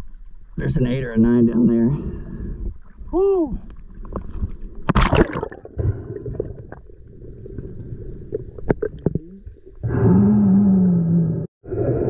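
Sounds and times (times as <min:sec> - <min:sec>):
underwater sea rumble: 0:00.0 - 0:12.0
bubbles gurgling: 0:04.8 - 0:10.8.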